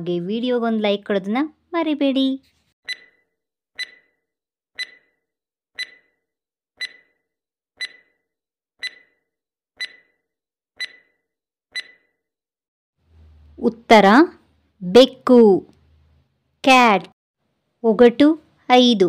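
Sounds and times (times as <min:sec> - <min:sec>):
timer tick with ringing tone: 0:02.9 - 0:03.2, 0:03.8 - 0:04.2, 0:04.8 - 0:05.2, 0:05.8 - 0:06.2, 0:06.8 - 0:07.2, 0:07.8 - 0:08.2, 0:08.8 - 0:09.2, 0:09.8 - 0:10.2, 0:10.8 - 0:12.2.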